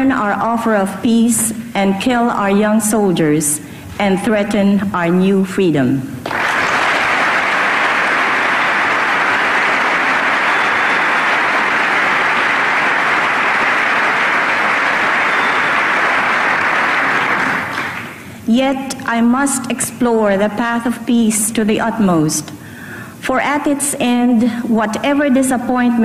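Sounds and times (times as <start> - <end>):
large audience applauding: 6.2 - 18.2.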